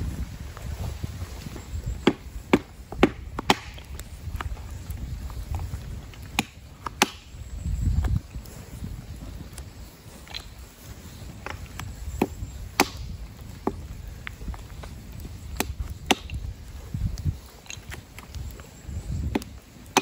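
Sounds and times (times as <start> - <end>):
hatchet chopping wood: 2.0 - 3.8, 6.3 - 7.3, 12.2 - 13.0, 15.6 - 16.4, 19.2 - 20.0.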